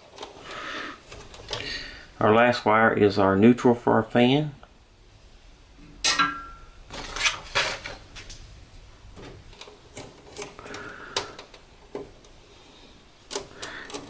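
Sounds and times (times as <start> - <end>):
clicks and taps of wiring: 9.2 - 12.4.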